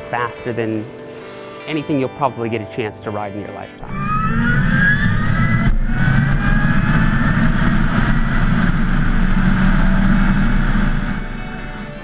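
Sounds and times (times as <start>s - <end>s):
electric motor whine: 3.8s - 12.0s.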